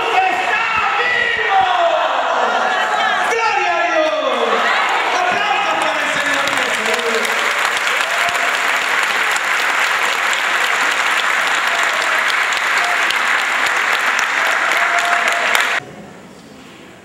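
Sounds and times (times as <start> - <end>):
crowd applause: 4.3 - 15.8.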